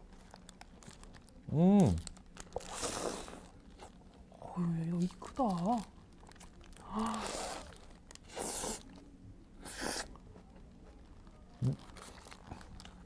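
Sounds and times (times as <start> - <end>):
crunchy chewing: 5.2 - 13.0.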